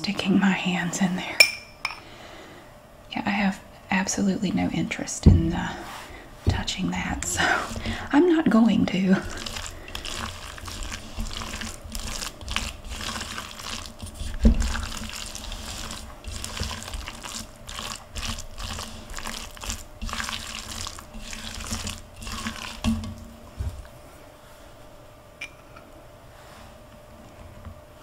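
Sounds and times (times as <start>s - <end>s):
wet squelching stirring: 5.4s - 24.0s
spatula scraping plastic bowl: 6.5s - 8.4s, 9.0s - 23.2s.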